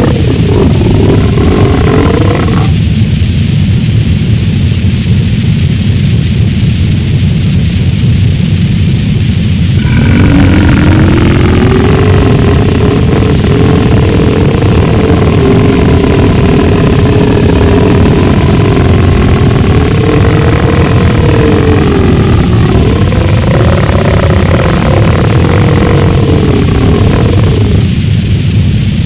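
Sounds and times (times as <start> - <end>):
wavering drone: 0.0 - 3.1, 9.4 - 29.0
distorted rumbling noise: 0.0 - 29.0.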